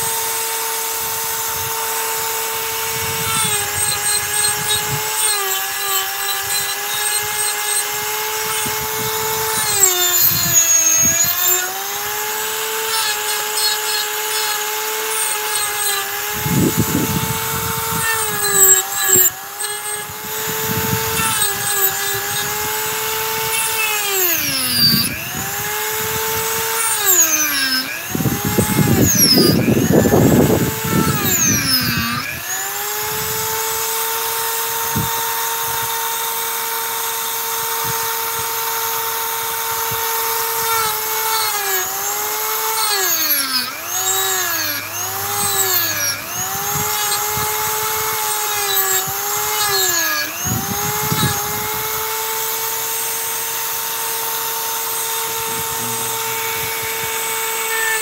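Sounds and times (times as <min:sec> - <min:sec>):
rotary tool grinding wood: 0:00.0 - 0:58.0
rotary tool whine: 0:00.0 - 0:58.0.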